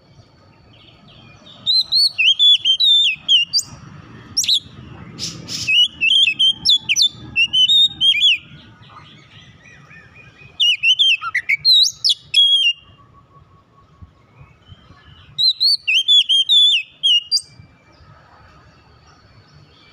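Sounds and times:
bird singing whistled phrases: 0:01.2 - 0:03.8, 0:04.4 - 0:17.6.

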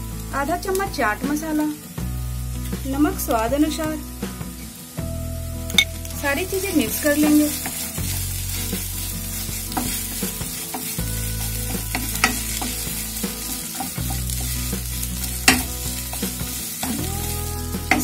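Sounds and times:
oil sizzling: 0:00.0 - 0:18.0
wooden spatula scraping a pan: 0:06.5 - 0:18.0
spatula knocking on pan: 0:09.5 - 0:17.1.

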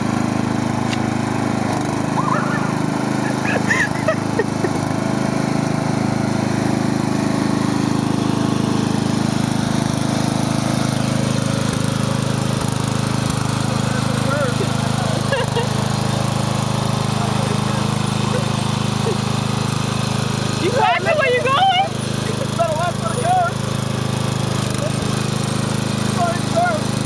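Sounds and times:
riding lawn mower engine running: 0:00.0 - 0:27.0
high-pitched calls: 0:02.1 - 0:03.7.

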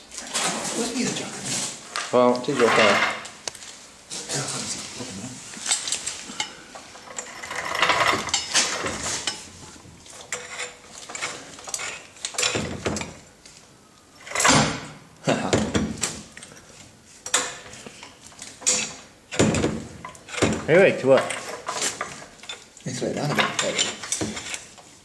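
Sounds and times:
hydraulic jack pumping clunks: 0:10.2 - 0:13.2, 0:18.6 - 0:22.6.

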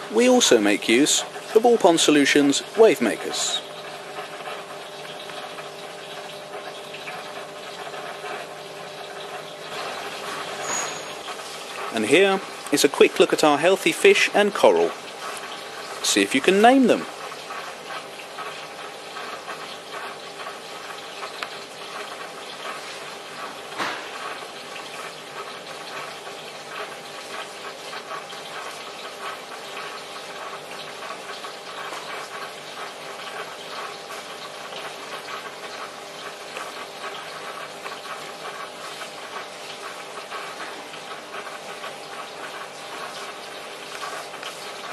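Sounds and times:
water rushing and trickling: 0:00.0 - 0:44.9.

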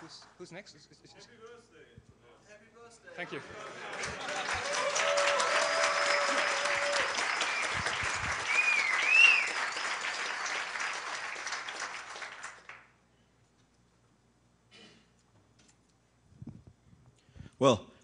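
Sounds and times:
audience applauding: 0:03.7 - 0:12.9
high call from crowd: 0:04.6 - 0:07.8.

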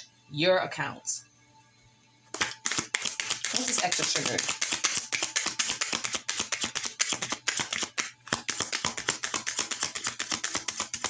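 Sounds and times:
cards being shuffled: 0:02.4 - 0:11.0.

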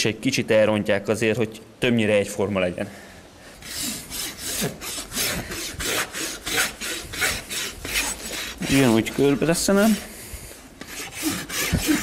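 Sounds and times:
hoof rasp filing: 0:03.6 - 0:10.0, 0:10.8 - 0:12.0.

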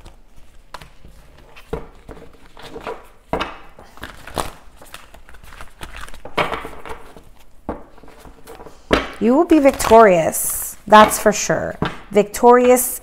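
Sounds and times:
cards rustling: 0:00.0 - 0:10.3.

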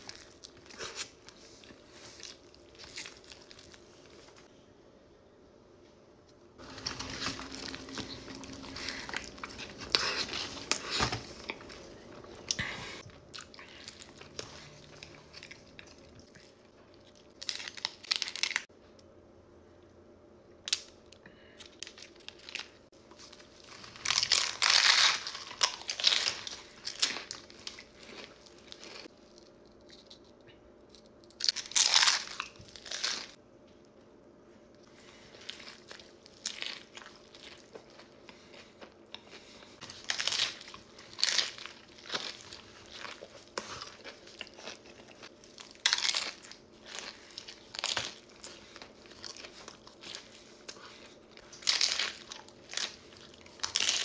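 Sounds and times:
crunchy biting and chewing food: 0:06.6 - 0:18.6, 0:22.0 - 0:30.3, 0:31.3 - 0:33.4, 0:34.8 - 0:54.0.

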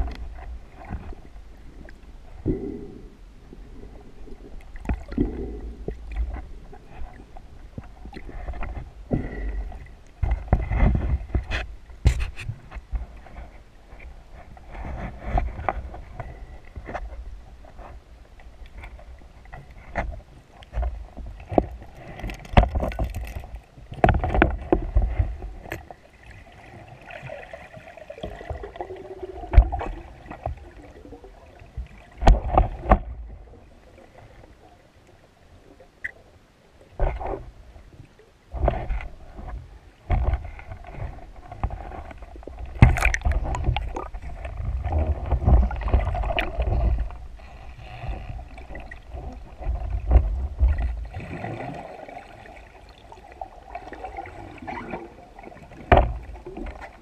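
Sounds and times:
gear knocks and clicks: 0:19.8 - 0:25.9, 0:40.1 - 0:50.9
water rushing underwater: 0:21.4 - 0:34.4, 0:40.5 - 0:47.4, 0:48.0 - 0:57.0.

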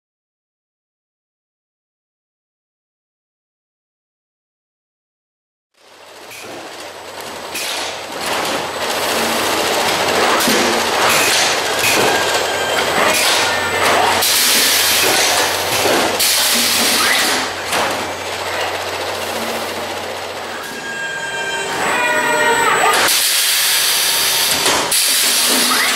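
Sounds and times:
motor hum: 0:05.8 - 0:25.9
air hiss bursts: 0:23.1 - 0:25.7.

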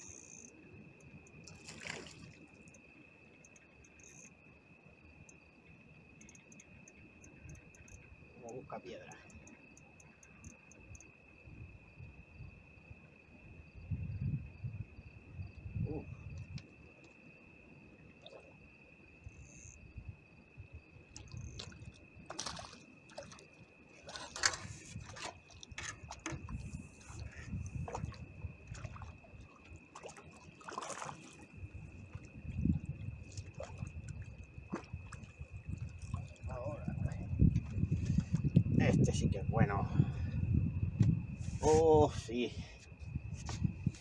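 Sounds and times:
high-pitched cricket trill: 0:00.0 - 0:44.0
faint ticks: 0:03.4 - 0:04.3, 0:06.2 - 0:08.1, 0:09.0 - 0:11.1.

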